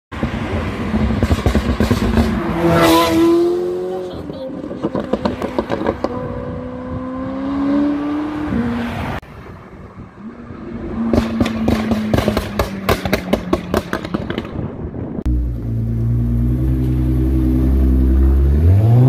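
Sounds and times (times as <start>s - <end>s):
car engine climbing in pitch: 0.1s - 19.0s
sports car accelerating past: 0.3s - 4.0s, 4.8s - 9.2s.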